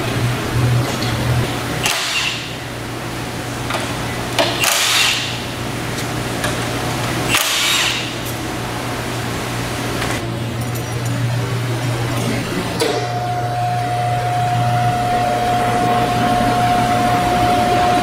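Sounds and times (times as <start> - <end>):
low shop hum: 0.0 - 18.0
cordless impact tool bursts: 1.8 - 2.6, 4.4 - 5.4, 7.3 - 8.2.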